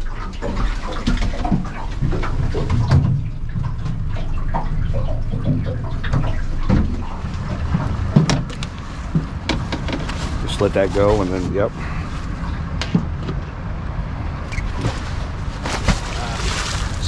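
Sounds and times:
steady low rumble: 0.0s - 17.0s
water sloshing against metal hull: 0.0s - 17.0s
knocks and clunks: 0.4s - 11.6s, 12.4s - 13.6s.

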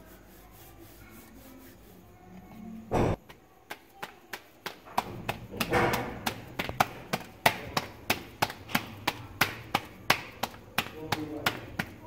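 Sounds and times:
dough slapped between palms: 3.0s - 12.0s.

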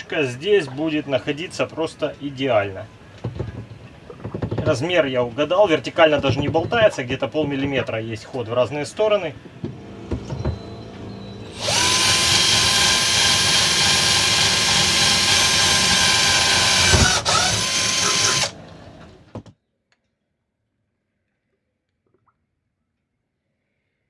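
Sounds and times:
cordless drill motor whine: 11.1s - 18.6s.

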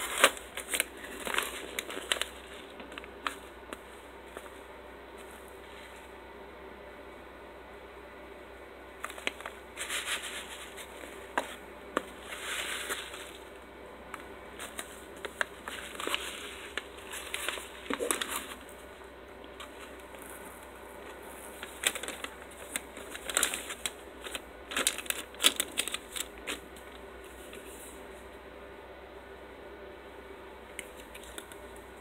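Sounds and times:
foil pouch crinkling: 0.0s - 4.5s, 9.0s - 11.4s, 14.6s - 18.9s, 19.5s - 27.7s.

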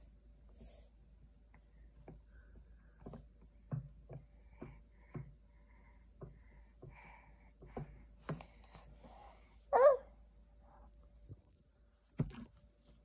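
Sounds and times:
baby squealing: 9.8s - 10.0s.

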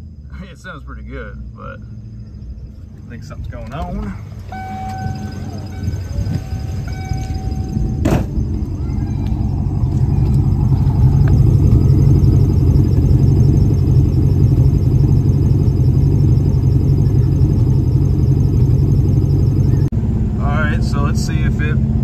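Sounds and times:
car exhaust low rumble: 0.0s - 22.0s.

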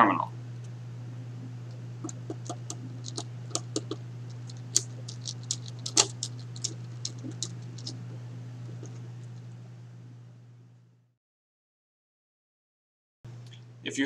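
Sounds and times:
steady low hum: 0.0s - 11.2s, 13.3s - 14.0s
fingers clicking wire into terminal: 2.0s - 8.0s.

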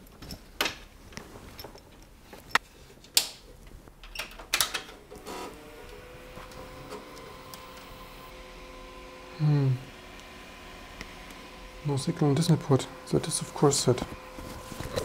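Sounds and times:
electronic hum with high tone: 5.1s - 15.0s.

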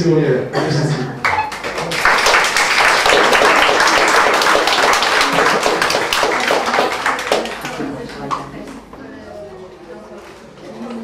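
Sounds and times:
audience applauding: 1.2s - 8.2s.

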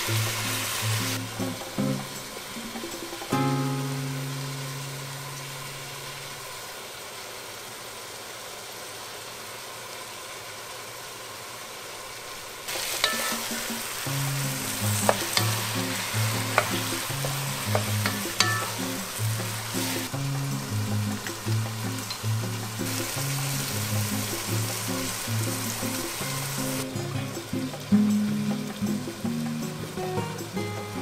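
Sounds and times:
background music: 0.0s - 5.6s, 12.8s - 31.0s
meat and onions sizzling: 0.0s - 31.0s.

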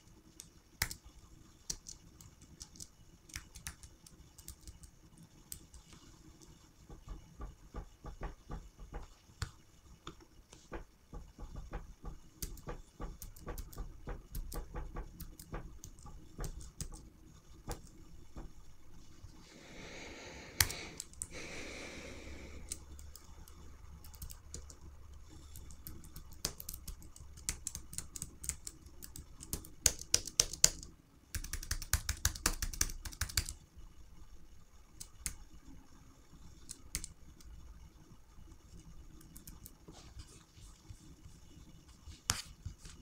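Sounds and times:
computer keyboard keys clicking: 0.4s - 1.1s, 1.7s - 5.8s, 12.4s - 17.1s, 22.6s - 33.6s, 36.6s - 37.2s.

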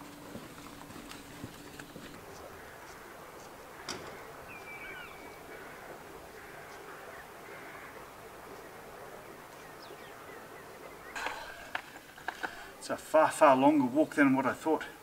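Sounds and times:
shoreline ambience hiss: 0.0s - 15.0s
bird chirping: 0.7s - 12.1s.

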